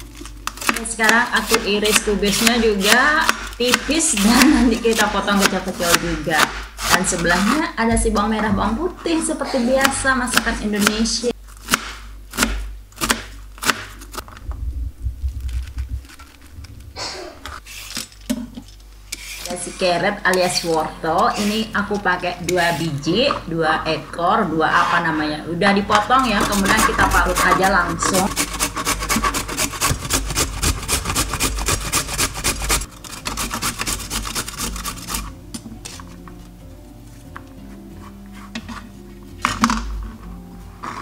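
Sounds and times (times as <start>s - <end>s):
knife chopping on plastic board: 0.5s - 8.3s, 9.8s - 14.0s, 25.9s - 35.2s
rustling scrape: 14.2s - 18.3s
carrot rasping on metal grater: 19.1s - 21.8s, 26.2s - 35.4s.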